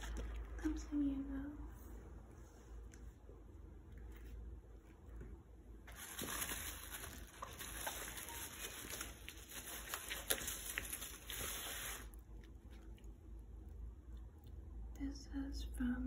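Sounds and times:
plastic packaging crinkling: 5.8 - 12.6.

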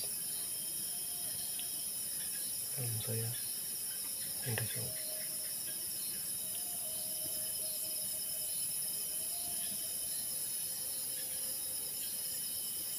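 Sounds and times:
crickets and night insects trilling: 0.0 - 12.9
faint wavering low tone: 4.2 - 12.9.

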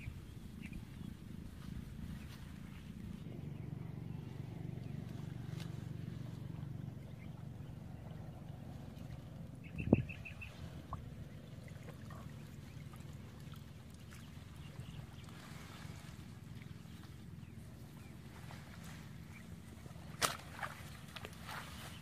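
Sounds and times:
muddy water sloshing: 0.0 - 22.0
sharp knock or splash: 20.1 - 20.8.

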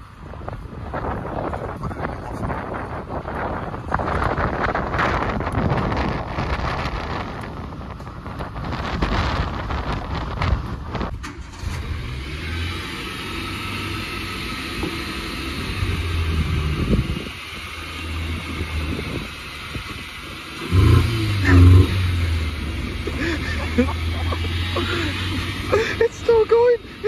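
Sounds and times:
wind noise on microphone: 0.0 - 12.3, 15.6 - 23.6
car engine running: 0.6 - 27.0
engine revving: 11.2 - 27.0.

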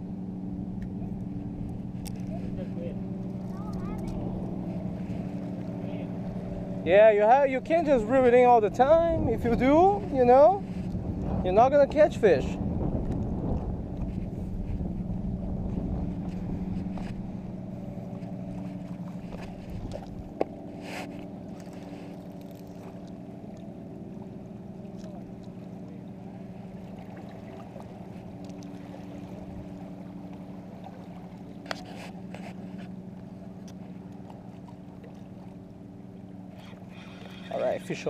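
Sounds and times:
engine hum: 0.0 - 38.0.

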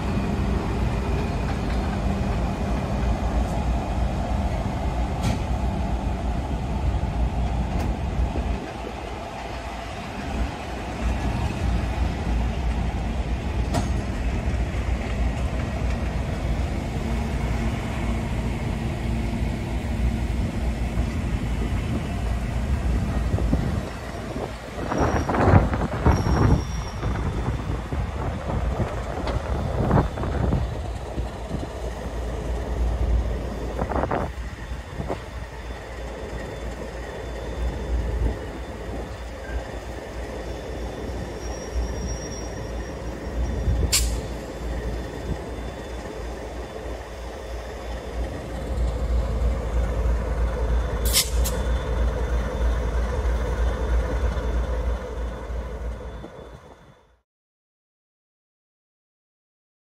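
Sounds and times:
train wheels rumbling over rail joints: 0.0 - 57.0
thin high squeal: 24.9 - 27.5, 35.6 - 44.4.

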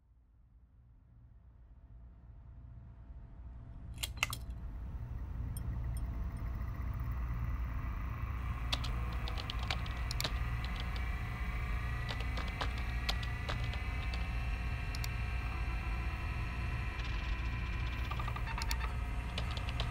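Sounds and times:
low electrical hum: 1.8 - 19.9
faint rising whine: 2.6 - 19.9
keyboard typing clicks: 4.0 - 4.5, 8.7 - 11.1, 12.0 - 15.2, 17.3 - 19.9.

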